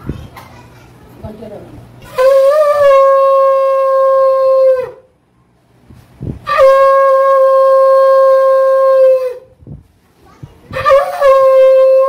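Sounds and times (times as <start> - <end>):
conch shell blasts: 2.0 - 5.1, 6.4 - 9.5, 10.7 - 12.0.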